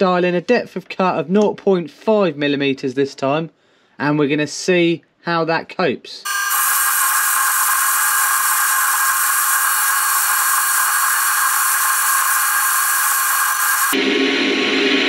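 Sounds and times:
lathe cutting steel hiss: 6.2 - 14.0
lathe whine: 6.3 - 15.0.

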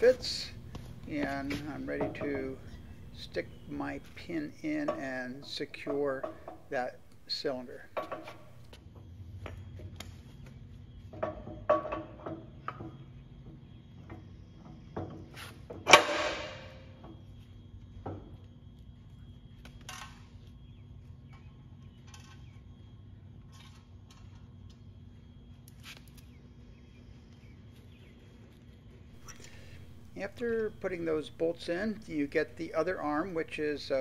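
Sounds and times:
metal clinks and taps: 0.0 - 8.7
faint steady hum: 0.0 - 15.1, 15.9 - 34.0.

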